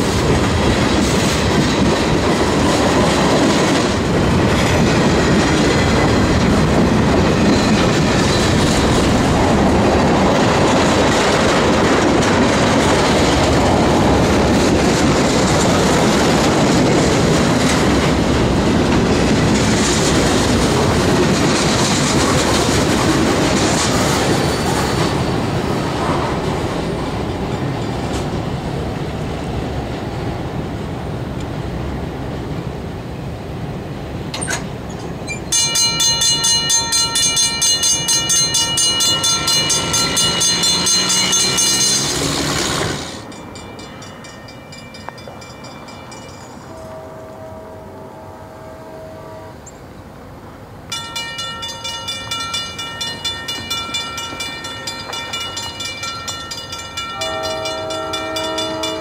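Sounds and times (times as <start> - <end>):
train wheels clattering on rails: 0.0 - 30.5, 34.2 - 46.9, 50.9 - 59.0
crossing bell ringing: 7.0 - 9.0, 35.2 - 49.8, 50.9 - 59.0.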